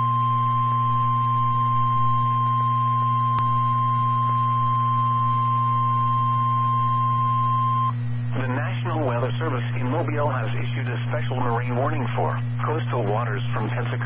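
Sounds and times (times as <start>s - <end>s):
steady high alarm beep: 0.0s - 7.9s
low steady hum: 0.0s - 14.0s.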